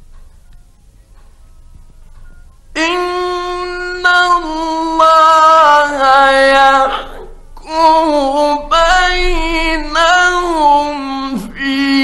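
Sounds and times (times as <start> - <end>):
man reciting melodically: 2.5 - 12.0.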